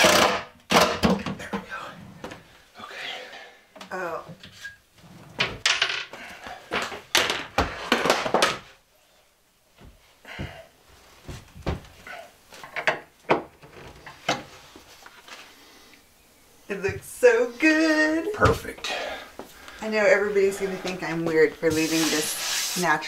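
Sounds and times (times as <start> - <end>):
knocks and clatter on wooden cabinet: 12.8 - 14.5
person speaking: 16.7 - 23.0.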